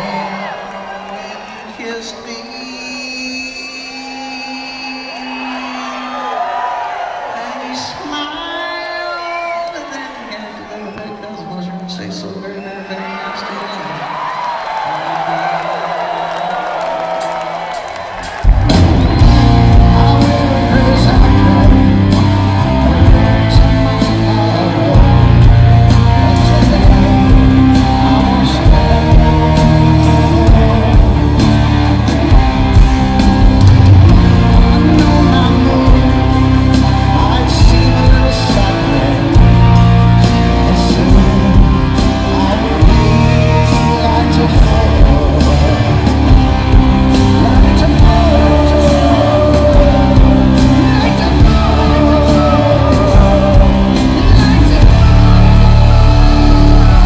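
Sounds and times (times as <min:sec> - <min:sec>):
live rock band playing: 0:16.9 - 0:57.0.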